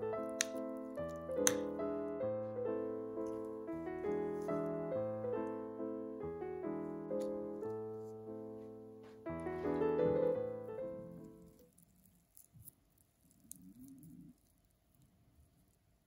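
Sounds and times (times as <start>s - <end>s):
gentle piano music: 0.0s - 11.8s.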